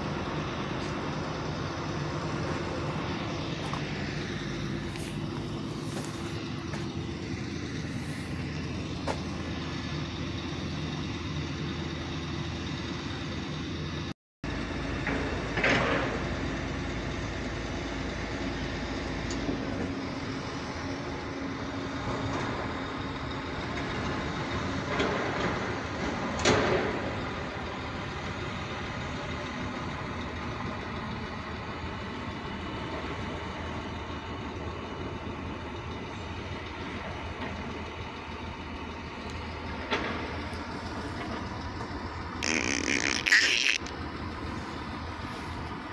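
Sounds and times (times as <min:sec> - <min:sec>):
diesel engines running: 0:00.0 - 0:45.9.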